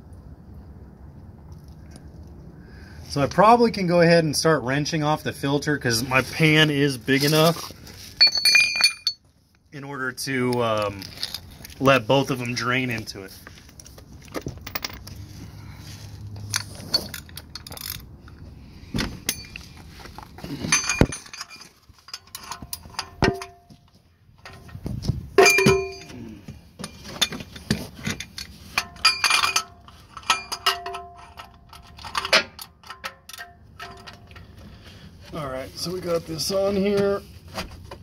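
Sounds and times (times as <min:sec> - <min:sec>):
metal hand tools clinking: 0:08.2 - 0:09.2, 0:19.3 - 0:19.8, 0:20.5 - 0:23.6, 0:25.4 - 0:26.2, 0:26.8 - 0:34.4.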